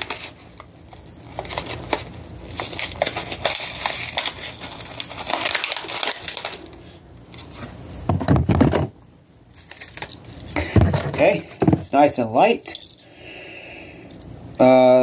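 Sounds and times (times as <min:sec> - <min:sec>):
plastic packaging crinkling: 0:00.0 - 0:08.0, 0:09.2 - 0:11.7.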